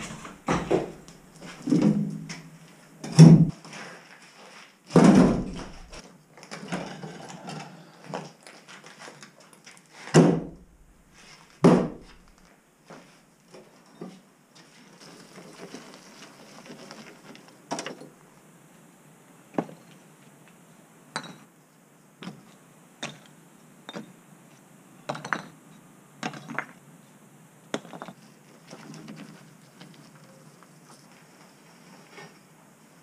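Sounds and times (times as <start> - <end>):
stone rubble knocking into trailer: 0.0 - 2.2, 5.0 - 6.0.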